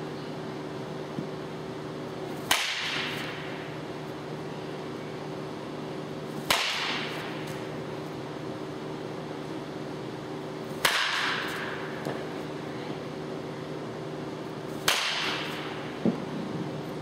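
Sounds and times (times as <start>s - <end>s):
bat cracking baseball: 2.3s - 3.8s, 6.4s - 7.8s, 10.7s - 12.5s, 14.7s - 16.3s.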